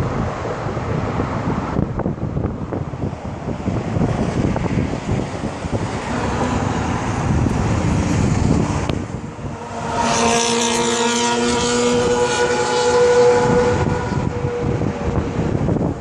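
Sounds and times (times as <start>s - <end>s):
wind buffeting microphone: 0.0s - 16.0s
motorcycle engine passing: 5.7s - 15.5s.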